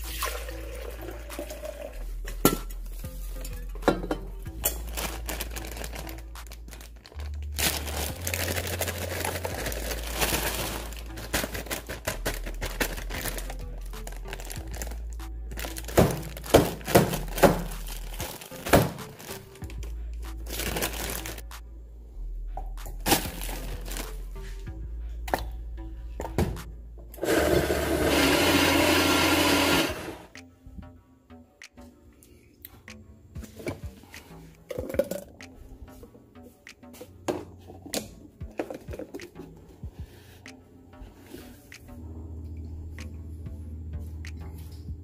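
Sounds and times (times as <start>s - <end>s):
background music with bass line: 0.0s - 45.0s
plastic bag crinkling: 4.8s - 15.0s, 15.6s - 19.6s, 20.5s - 21.4s
frozen fruit clunking into blender: 15.9s - 17.7s.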